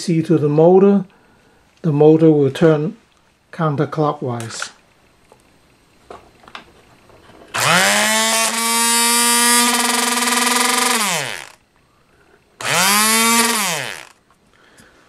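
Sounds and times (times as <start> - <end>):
motor whining: 7.6 - 11.6, 12.6 - 14.2.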